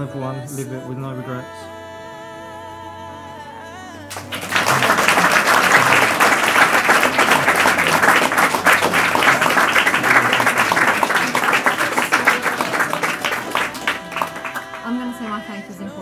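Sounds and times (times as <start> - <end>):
crowd applauding: 4.1 - 15.3
held musical chord: 4.1 - 16.0.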